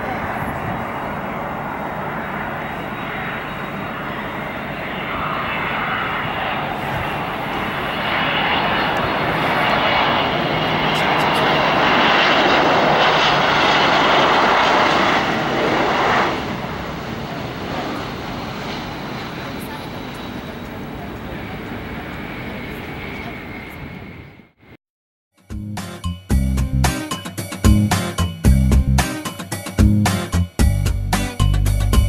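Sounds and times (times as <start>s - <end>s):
jet engines passing overhead: 0.0s - 24.8s.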